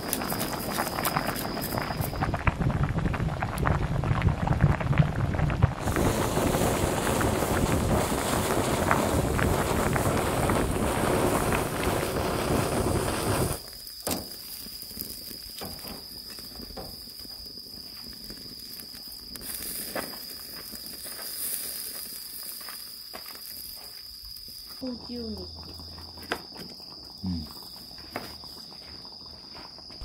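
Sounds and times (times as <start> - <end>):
soup bubbling: 0.0 - 22.6, 25.2 - 29.4
charcoal fire crackling: 0.0 - 30.0
gas stove burner hissing: 5.8 - 24.8.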